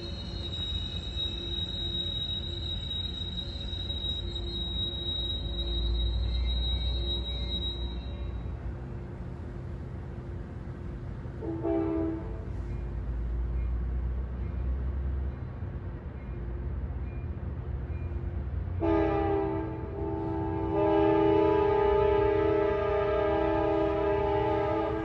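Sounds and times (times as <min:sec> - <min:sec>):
train engine rumble: 0:00.0 - 0:25.0
train horn blast: 0:11.4 - 0:12.6, 0:18.8 - 0:25.0.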